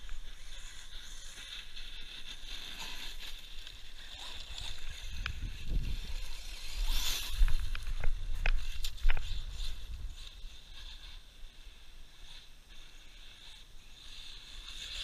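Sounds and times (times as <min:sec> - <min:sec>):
toy truck driving over gravel: 0:00.0 - 0:11.1.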